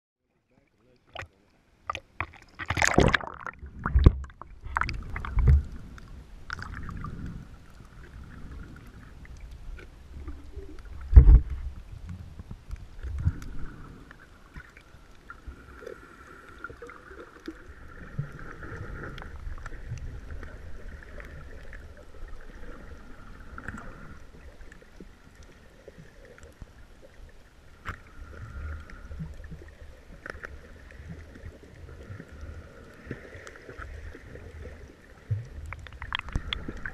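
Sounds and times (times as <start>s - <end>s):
low water rumble: 0.2s - 36.9s
dull underwater thumps: 1.9s - 5.7s, 11.1s - 11.6s
underwater splash: 1.9s - 11.8s, 33.0s - 36.9s.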